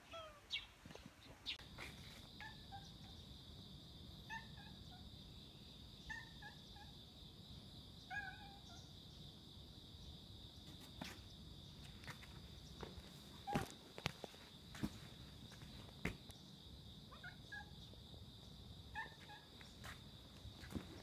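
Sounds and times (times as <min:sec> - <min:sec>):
faint cat meows: 0:08.1 - 0:08.9, 0:17.1 - 0:17.8.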